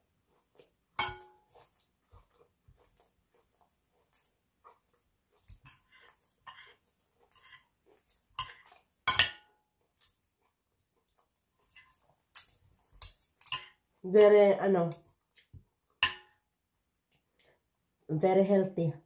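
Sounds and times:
knife and spoon scraping plate: 5.6s - 9.4s.

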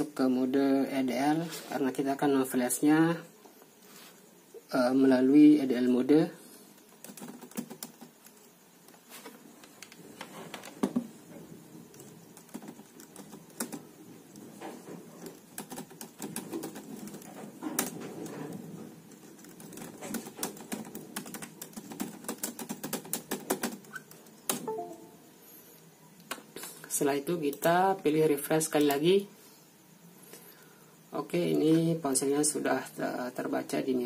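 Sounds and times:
typing on a computer keyboard: 6.8s - 8.5s, 11.9s - 14.4s, 15.2s - 18.5s, 19.1s - 24.7s.

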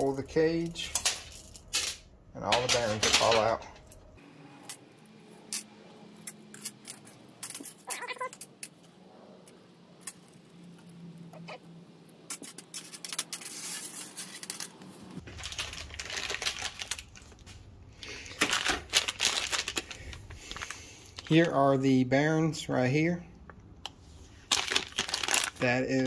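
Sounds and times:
steel rollers dropping on workbench: 0.8s - 3.9s.

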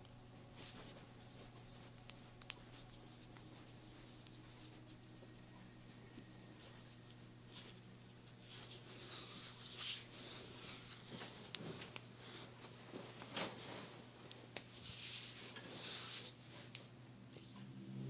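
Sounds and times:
faint steady hum: 0.0s - 18.0s
hands rubbing skin: 0.6s - 13.2s.

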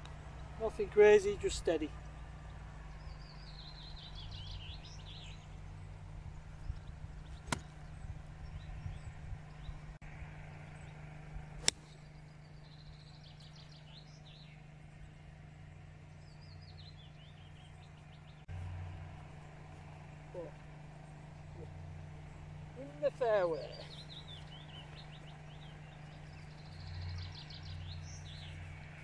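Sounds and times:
low steady hum: 0.0s - 29.0s
songbird chirping: 0.0s - 29.0s
golf club striking ball: 7.4s - 8.0s, 11.6s - 12.0s.

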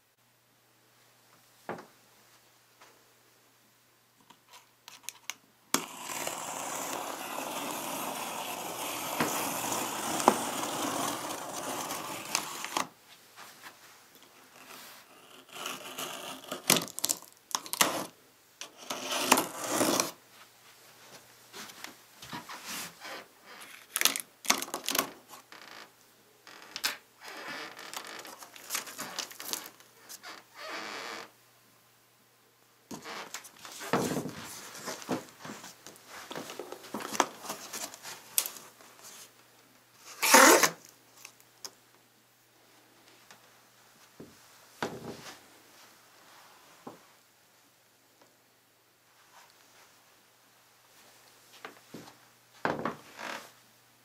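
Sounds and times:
box cutter slitting tape: 5.8s - 12.9s, 15.4s - 20.2s, 40.1s - 40.8s
cardboard scraping and rustling: 5.8s - 12.9s, 33.6s - 39.3s.

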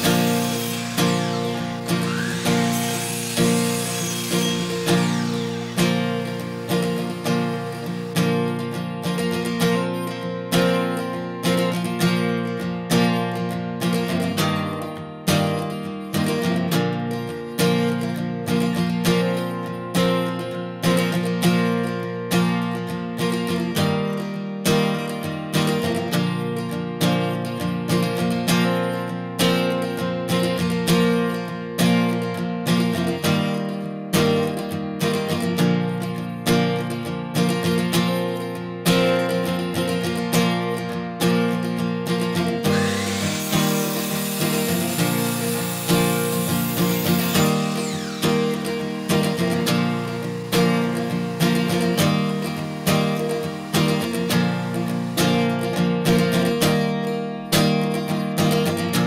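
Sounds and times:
acoustic guitar strumming chords: 0.0s - 59.0s.

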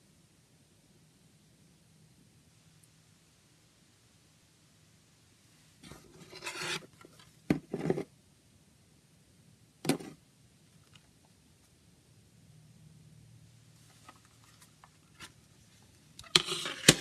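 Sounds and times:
plastic case scraping on table: 5.8s - 8.1s, 16.2s - 17.0s.

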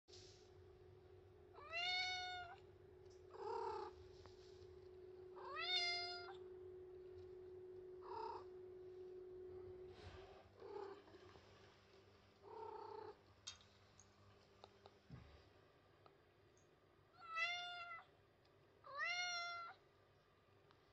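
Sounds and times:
cat meowing: 1.6s - 2.6s, 5.4s - 6.4s, 17.2s - 18.1s, 18.9s - 19.8s.

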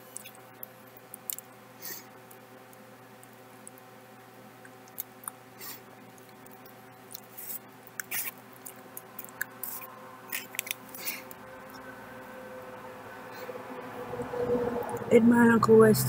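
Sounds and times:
mouth chewing wet smacks: 4.6s - 11.4s.

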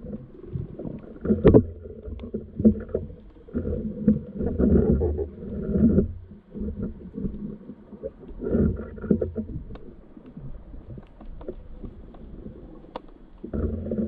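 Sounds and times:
muffled underwater water rumbling: 0.0s - 14.0s
faint clicks: 6.8s - 14.0s.

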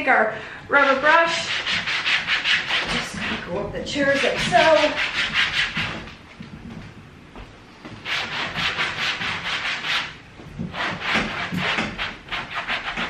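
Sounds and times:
brush scrubbing fabric: 0.8s - 6.1s, 8.0s - 13.0s.

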